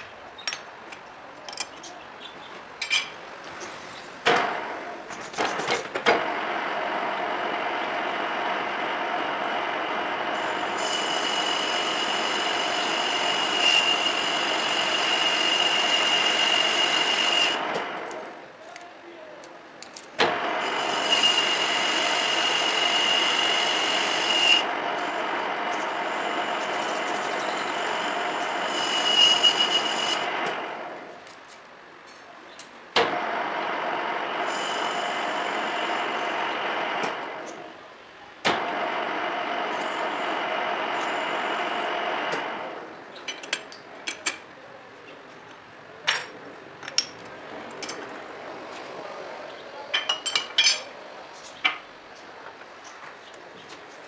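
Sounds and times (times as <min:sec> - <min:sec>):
high steady whine: 0:04.3 - 0:18.6, 0:20.2 - 0:31.4, 0:33.1 - 0:43.2
metal lathe running: 0:06.1 - 0:18.4, 0:20.2 - 0:31.2, 0:33.0 - 0:37.8, 0:38.5 - 0:43.1.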